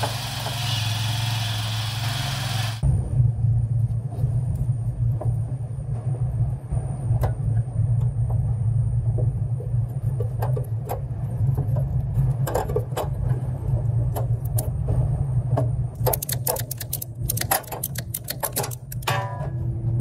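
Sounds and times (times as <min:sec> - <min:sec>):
steady low rumble: 0:02.8 - 0:20.0
metal clicks of hand tools: 0:16.0 - 0:19.2.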